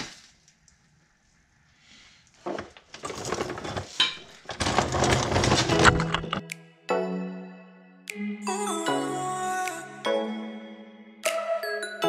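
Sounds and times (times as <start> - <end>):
metal rattling and clattering: 2.9 - 6.4.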